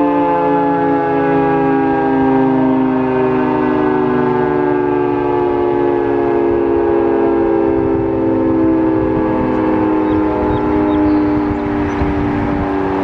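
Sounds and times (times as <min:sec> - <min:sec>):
multi-tone warning siren: 0:00.0 - 0:13.0.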